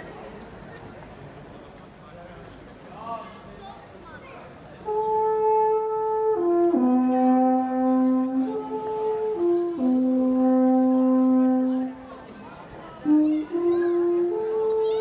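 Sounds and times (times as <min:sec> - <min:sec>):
alphorn playing long notes: 0:04.8 - 0:12.1, 0:13.0 - 0:15.0.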